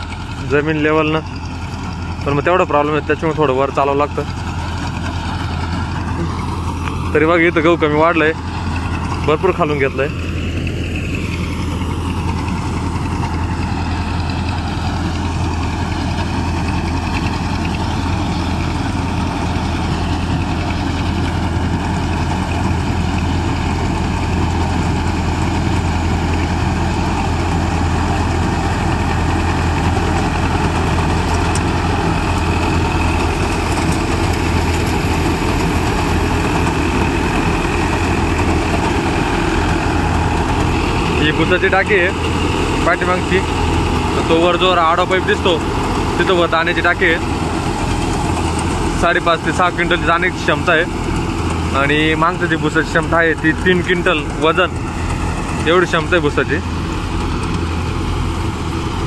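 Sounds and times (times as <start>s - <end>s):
combine harvester humming: 0.0s - 59.0s.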